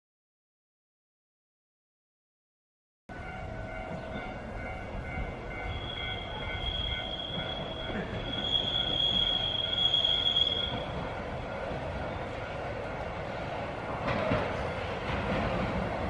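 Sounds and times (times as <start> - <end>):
tram rumbling: 3.1 - 16.0
tram wheels squealing: 3.2 - 12.8.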